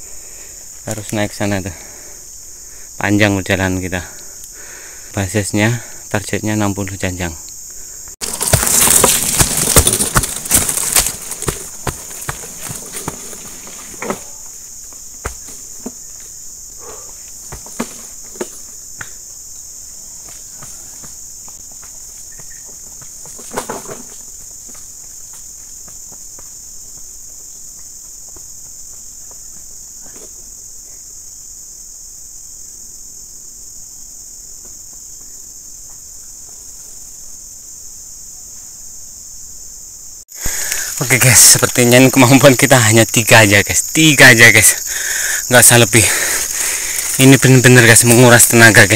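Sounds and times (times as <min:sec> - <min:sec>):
insects chorus: 0:00.0 - 0:48.9
rustle: 0:07.4 - 0:42.3, 0:44.3 - 0:48.9
footsteps: 0:08.1 - 0:14.4, 0:46.0 - 0:48.8
wheelbarrow pushed over rough ground: 0:08.2 - 0:14.4, 0:23.3 - 0:24.3, 0:46.1 - 0:47.3.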